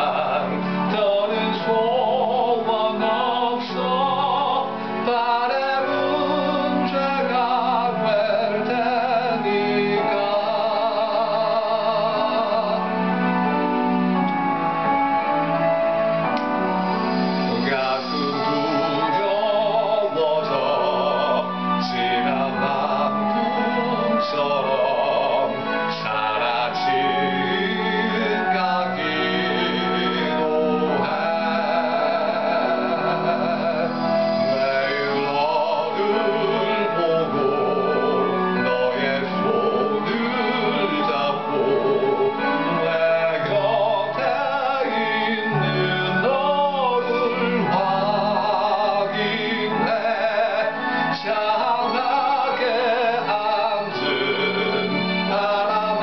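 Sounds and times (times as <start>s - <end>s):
instrumental accompaniment: 0.0s - 56.0s
man singing a slow ballad: 17.5s - 56.0s.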